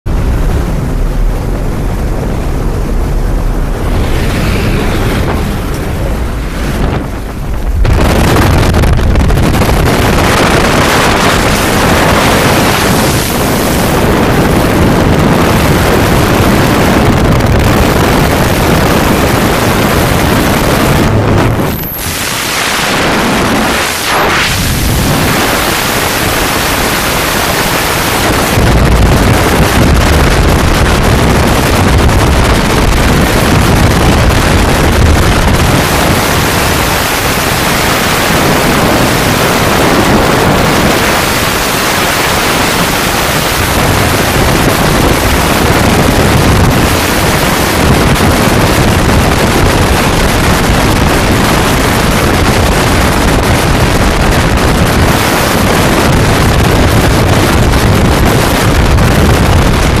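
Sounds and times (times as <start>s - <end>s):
freefall wind blasting over microphone: 0.0s - 60.0s.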